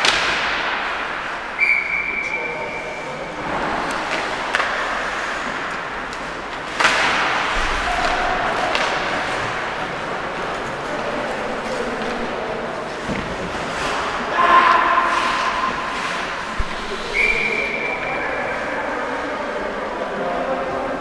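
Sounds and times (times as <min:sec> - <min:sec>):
whistle blast: 0:01.6 - 0:03.0, 0:17.1 - 0:18.2.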